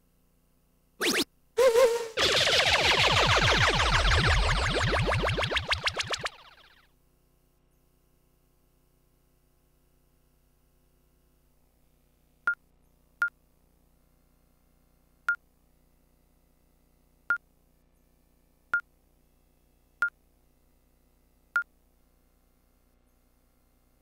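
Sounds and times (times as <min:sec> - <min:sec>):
dart machine short beeps: 0:01.0 - 0:02.2.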